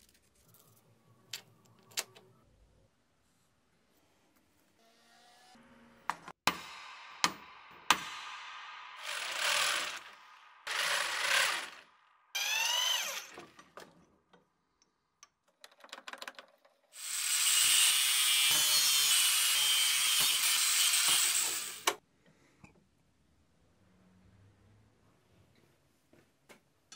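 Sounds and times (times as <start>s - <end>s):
power tool motor: 9.0s - 10.1s, 10.7s - 11.8s, 12.4s - 13.5s, 17.0s - 22.0s.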